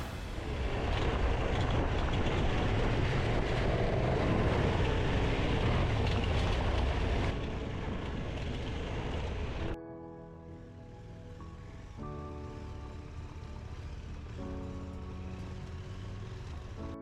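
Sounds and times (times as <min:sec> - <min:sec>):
motorcycle engine rumble: 0:11.0 - 0:17.0.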